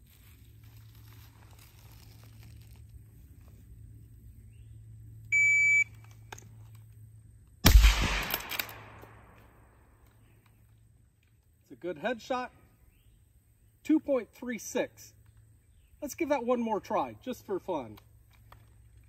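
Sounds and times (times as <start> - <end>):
shot timer beep: 5.3 - 5.9
rifle shot with echo: 7.6 - 9.6.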